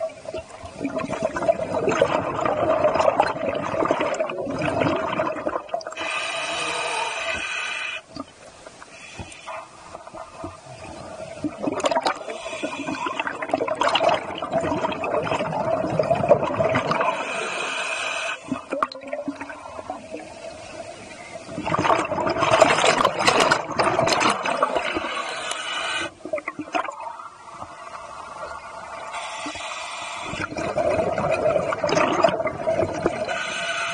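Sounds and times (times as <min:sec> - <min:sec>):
faint steady hum: 0:00.0 - 0:33.9
air bubbling underwater: 0:00.8 - 0:06.0, 0:10.0 - 0:17.2, 0:21.6 - 0:25.2, 0:30.3 - 0:33.4.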